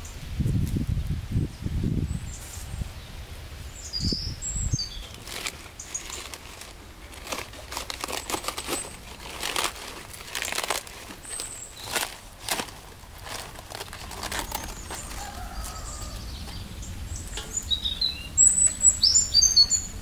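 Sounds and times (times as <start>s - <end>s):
low rumbles: 0.0s - 20.0s
cabbage leaves crackling: 2.3s - 20.0s
bird chirping: 3.0s - 5.2s, 11.2s - 12.1s, 14.3s - 20.0s.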